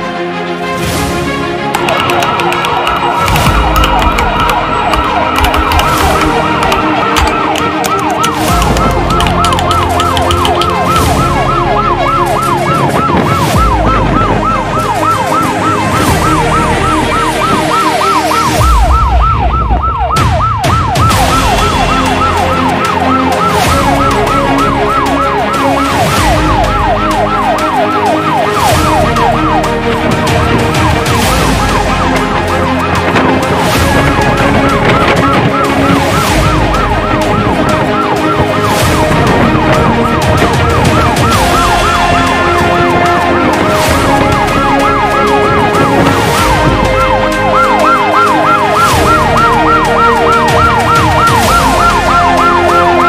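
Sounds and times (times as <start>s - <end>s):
fire truck siren warbling: 1.7s - 53.0s
engine and wind rumble: 10.6s - 17.8s.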